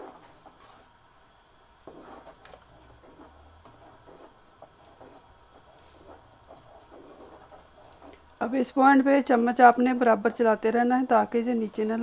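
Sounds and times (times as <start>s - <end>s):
thick pudding bubbling in pot: 0.0s - 12.0s.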